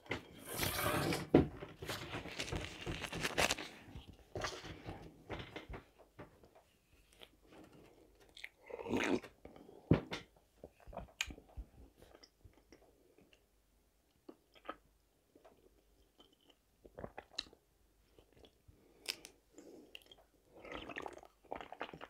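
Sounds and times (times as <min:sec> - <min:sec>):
person chewing: 0:08.2 - 0:09.4.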